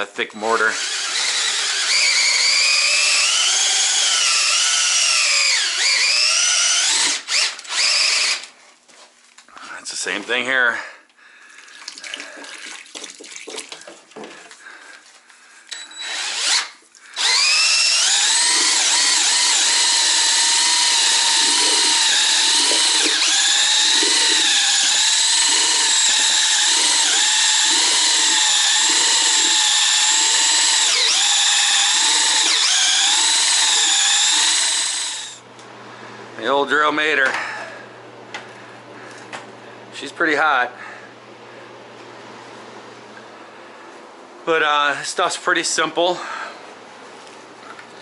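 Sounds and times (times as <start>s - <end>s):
drill motor whining: 0.5s - 8.5s, 15.7s - 35.5s
pouring: 11.4s - 14.6s, 18.5s - 33.2s
mixing paddle churning: 17.2s - 34.7s.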